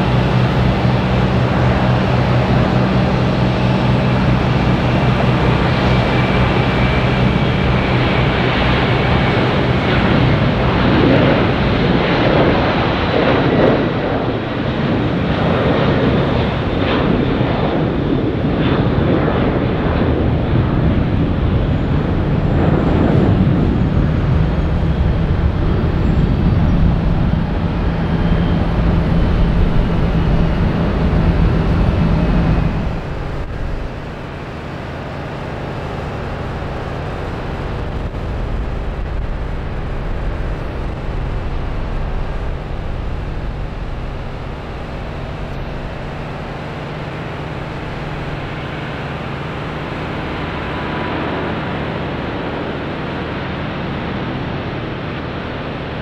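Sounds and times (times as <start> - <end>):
jet engines rumbling: 0.0 - 56.0
steady low hum: 20.5 - 52.8.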